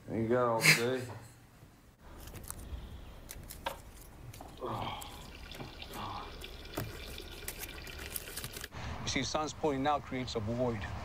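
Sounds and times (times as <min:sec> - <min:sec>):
small water drips: 0:03.3 - 0:08.7
water trickling and splashing: 0:03.4 - 0:08.8.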